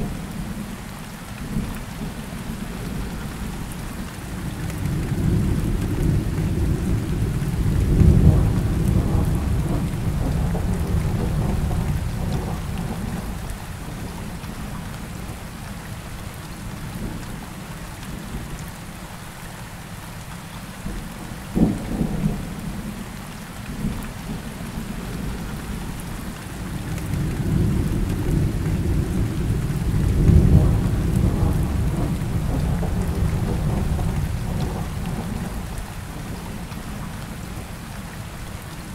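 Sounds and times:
rain hissing: 0:20.5 - 0:38.9
thunder rolling: 0:27.5 - 0:35.7.

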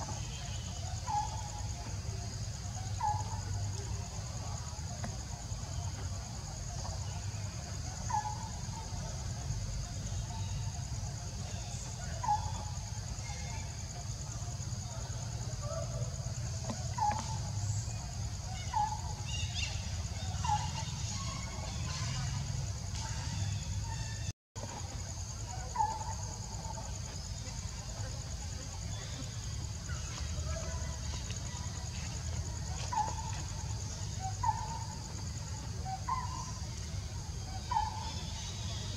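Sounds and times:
high-pitched pulsing insect drone: 0:00.0 - 0:38.9.

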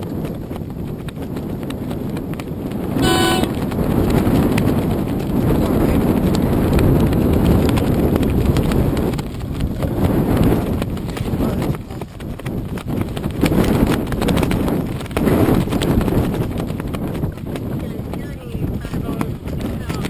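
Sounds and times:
wind noise on microphone: 0:00.0 - 0:20.0
high-pitched horn toot: 0:03.0 - 0:03.6.

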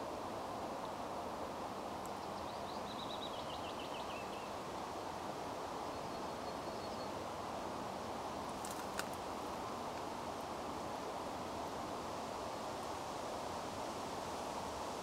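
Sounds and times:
outdoor background hiss: 0:00.0 - 0:15.0
small bird singing: 0:02.2 - 0:04.6, 0:05.8 - 0:07.2.

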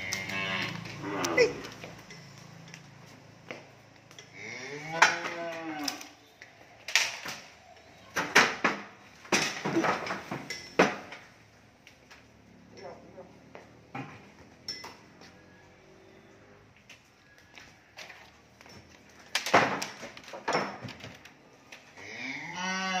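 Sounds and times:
cow mooing: 0:00.0 - 0:01.7, 0:04.3 - 0:06.2, 0:22.0 - 0:23.0.

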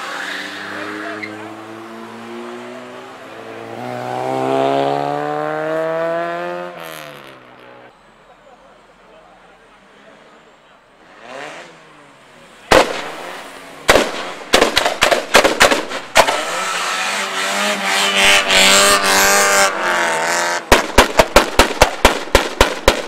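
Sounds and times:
car engine revving: 0:00.0 - 0:07.9, 0:11.0 - 0:22.6
loud sharp bangs: 0:12.7 - 0:16.9, 0:17.9 - 0:23.0.

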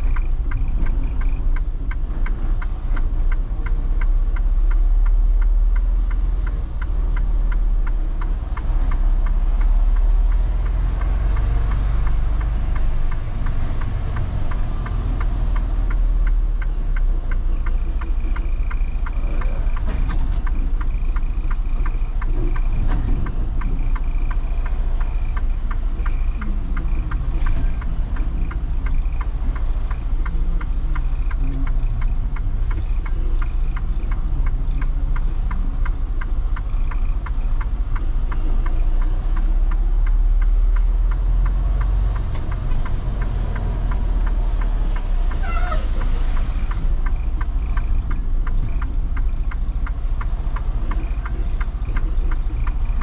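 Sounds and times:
diesel truck engine rumble: 0:00.0 - 0:53.0.

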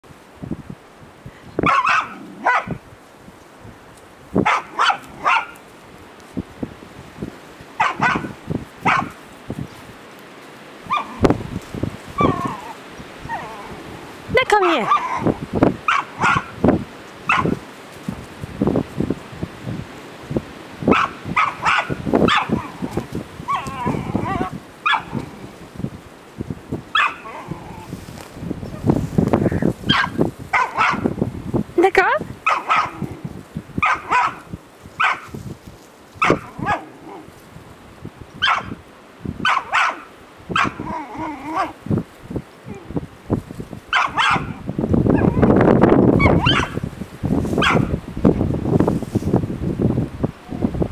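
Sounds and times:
dog barking sharply: 0:01.6 - 0:02.8, 0:04.4 - 0:05.6, 0:07.8 - 0:08.3, 0:08.9 - 0:09.1, 0:15.9 - 0:16.5, 0:17.3 - 0:17.6, 0:20.9 - 0:22.5, 0:27.0 - 0:27.3, 0:29.9 - 0:31.1, 0:32.4 - 0:33.0, 0:33.8 - 0:34.4, 0:35.0 - 0:35.3, 0:38.4 - 0:38.8, 0:39.4 - 0:40.8, 0:43.9 - 0:44.5, 0:46.3 - 0:46.8, 0:47.6 - 0:47.9
dog whining: 0:12.2 - 0:13.8, 0:23.5 - 0:25.2, 0:40.6 - 0:41.8.

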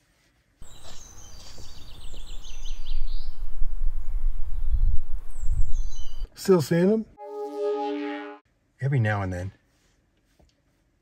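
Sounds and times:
birds chirping: 0:00.6 - 0:06.3
wind buffeting microphone: 0:02.0 - 0:06.3.

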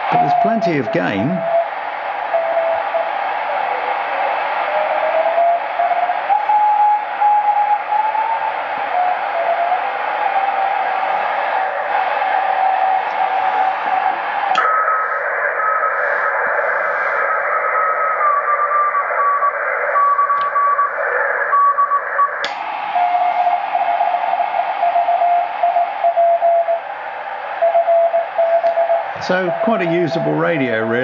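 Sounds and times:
radio static hiss: 0:00.0 - 0:07.3, 0:07.9 - 0:22.2, 0:22.8 - 0:31.0
sharp click: 0:22.4 - 0:22.6.

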